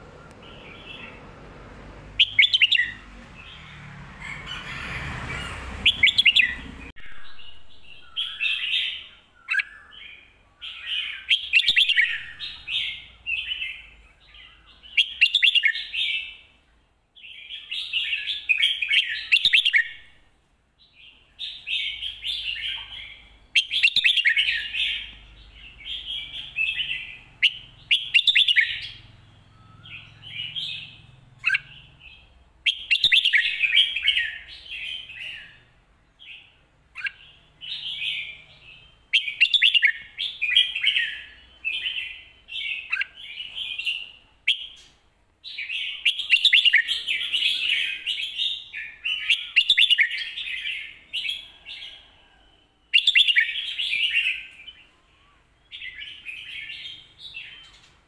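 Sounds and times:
bulbul singing warbling phrases: 2.2s - 3.0s.

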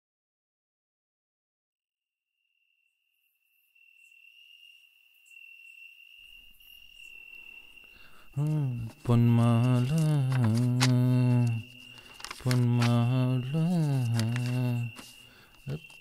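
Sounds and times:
high cricket-like trill: 2.4s - 16.0s
low voice singing sliding notes: 12.4s - 15.1s.

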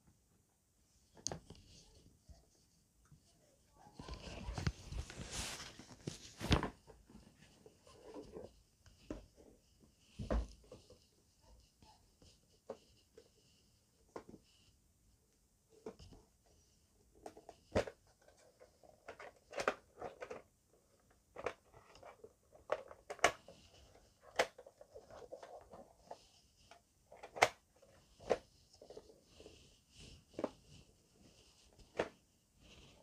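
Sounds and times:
plastic rubbing: 17.2s - 33.0s.

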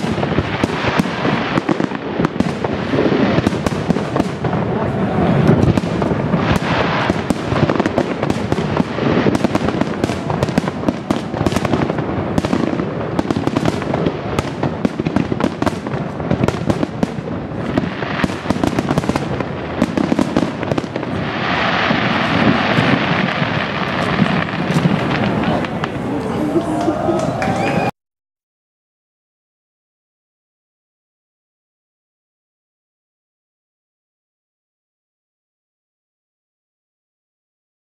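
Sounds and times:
fireworks bangs and crackles: 0.0s - 27.9s
fireworks hissing crackle: 0.0s - 27.9s.

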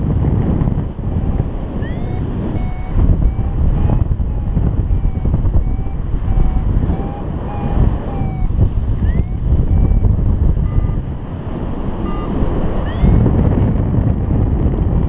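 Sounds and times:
rising electronic chirps: 0.0s - 11.1s, 12.0s - 15.0s
short electronic beeps: 0.0s - 11.2s, 11.9s - 15.0s
wind rushing over microphone: 0.0s - 15.0s.

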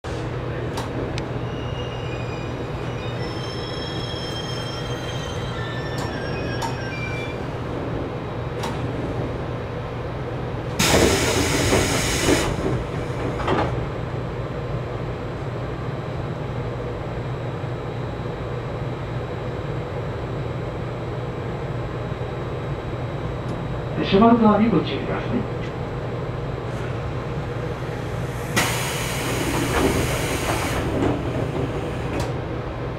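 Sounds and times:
train low hum: 0.0s - 32.9s
train brake squeal: 1.4s - 7.4s
air rush of doors opening: 10.6s - 14.0s, 26.3s - 32.6s.

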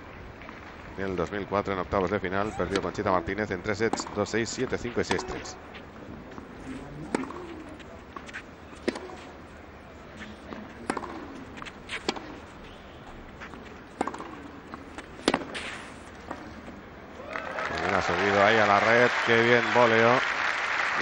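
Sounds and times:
tennis racket hitting ball: 3.9s - 4.3s, 5.0s - 5.4s, 6.7s - 9.3s, 10.2s - 12.6s, 13.4s - 16.6s.

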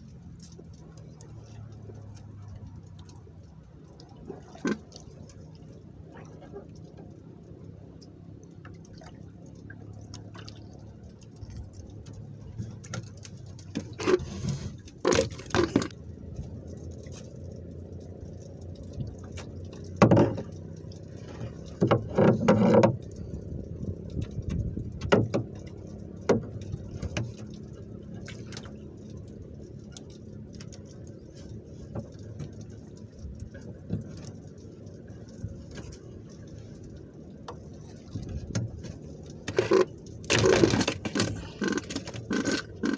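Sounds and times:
steady low rumble: 0.0s - 22.2s, 22.8s - 42.9s
fishing gear knocking and rattling: 39.4s - 42.9s.

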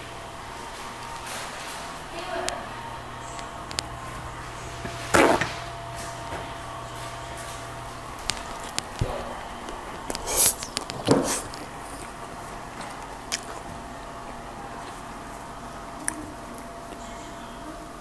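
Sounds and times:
faint hum: 0.0s - 18.0s.

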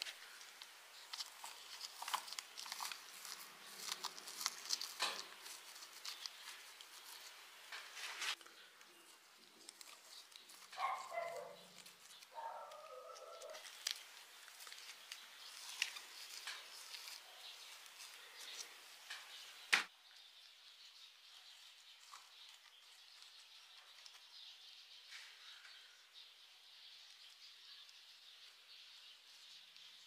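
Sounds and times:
stones clicking and scraping: 0.0s - 19.3s.

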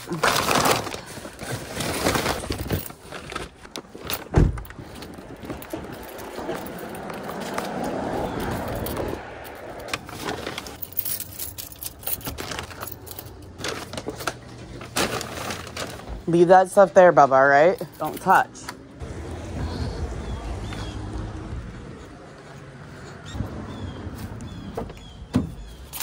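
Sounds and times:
paper bags crinkling: 0.0s - 9.0s, 9.8s - 17.0s
passing street traffic: 4.5s - 13.6s, 16.7s - 26.0s.

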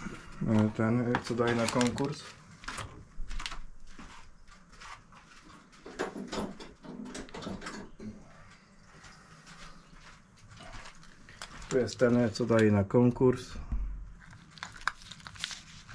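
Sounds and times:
metal detectors being handled: 0.5s - 2.2s.

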